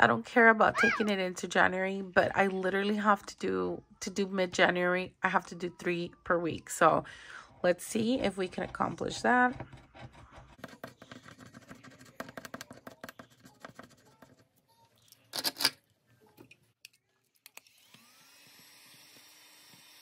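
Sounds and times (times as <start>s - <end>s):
scratching a scratch-off card: 8.8s - 14.5s
small motor whirring: 17.6s - 20.0s.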